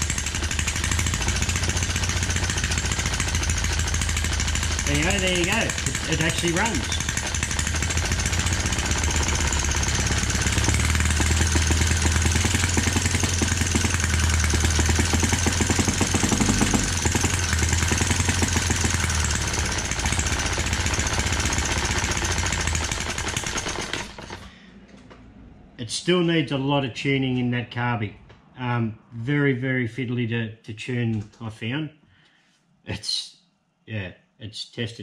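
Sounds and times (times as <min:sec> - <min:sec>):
small engine running fast: 0:00.0 - 0:24.5.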